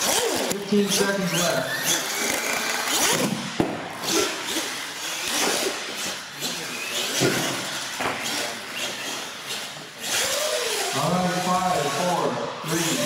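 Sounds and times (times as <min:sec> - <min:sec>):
toy truck motor whining: 0:00.0 - 0:03.4, 0:04.0 - 0:13.0.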